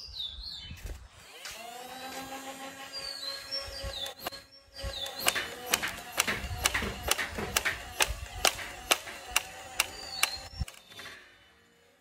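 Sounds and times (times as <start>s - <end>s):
foam dart blaster shots: 4.9s - 10.7s.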